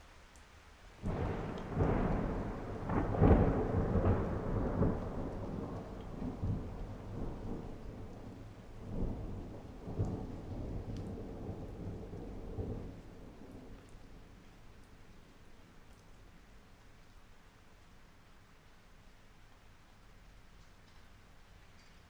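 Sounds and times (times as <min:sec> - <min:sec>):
thunder rumbling: 0:01.0 - 0:15.1.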